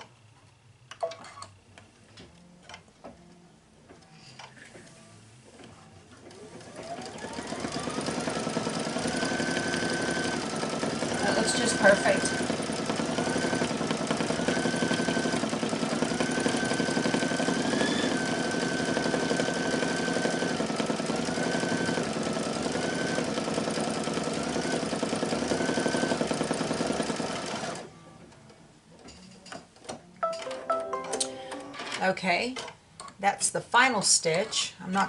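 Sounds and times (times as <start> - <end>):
embroidery machine stitching: 6.3 - 27.9
motor whine: 17.3 - 18.3.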